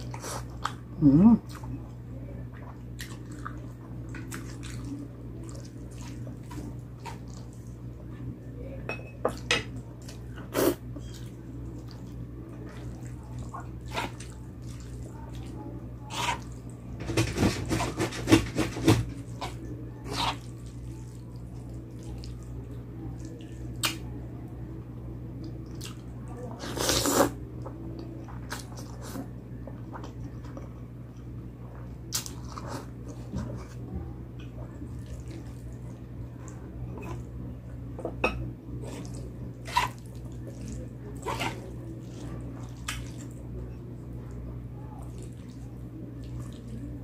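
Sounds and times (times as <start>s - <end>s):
steady low hum: 0.0s - 47.0s
person chewing: 26.6s - 29.2s.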